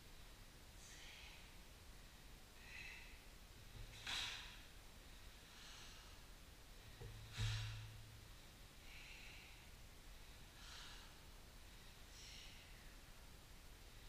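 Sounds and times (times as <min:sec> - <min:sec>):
thud: 0:07.0 - 0:07.9.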